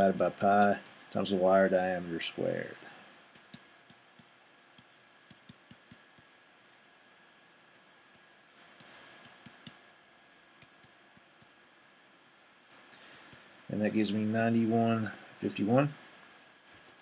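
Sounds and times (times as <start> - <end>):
stylus tapping on tablet: 3.3 - 6.4, 7.8 - 9.8, 10.6 - 11.6
pen scratching: 3.4 - 6.3, 7.8 - 9.8.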